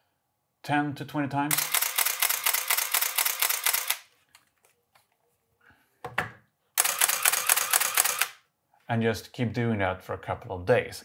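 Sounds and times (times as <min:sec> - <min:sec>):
camera shutter and motor drive firing: 0:01.5 - 0:04.0, 0:06.8 - 0:08.4.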